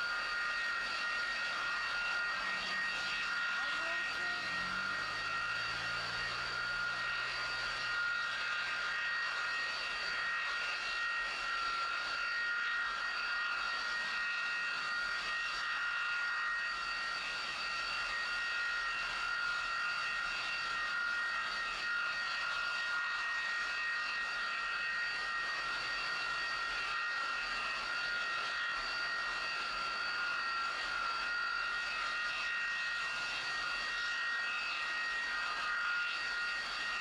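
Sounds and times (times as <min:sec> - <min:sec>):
jet engine turbine whine: 0:00.0 - 0:37.0.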